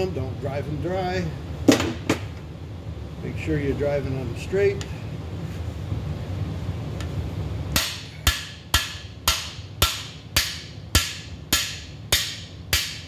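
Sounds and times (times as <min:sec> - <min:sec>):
hammer striking metal shaft: 0:07.8 - 0:13.0.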